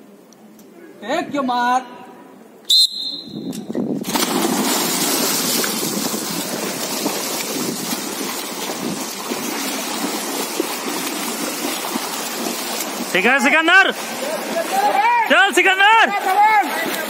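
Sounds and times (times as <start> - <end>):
swimmers splashing: 4.0 - 17.0
churning water rushing: 4.1 - 17.0.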